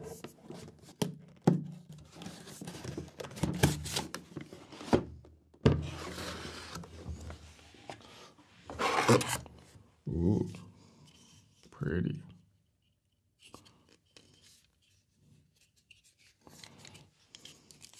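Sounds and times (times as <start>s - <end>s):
cardboard rustling and scraping: 1.9s - 5.2s, 5.8s - 9.7s.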